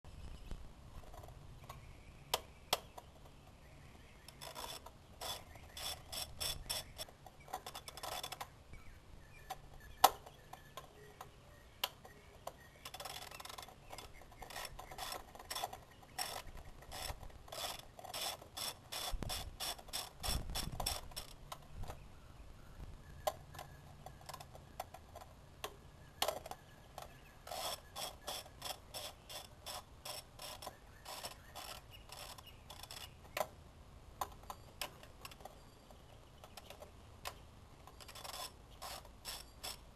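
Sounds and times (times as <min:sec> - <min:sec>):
hand ratchet clicking: 0:04.4 - 0:08.4, 0:12.9 - 0:21.6.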